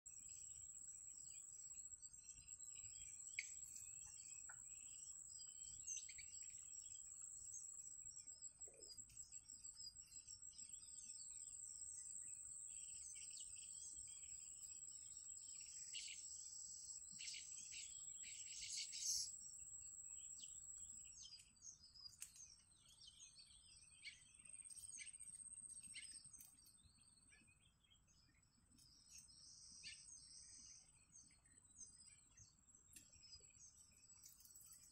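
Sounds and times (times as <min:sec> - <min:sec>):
insect drone: 0:00.1 - 0:22.1
birds chirping: 0:00.1 - 0:34.9.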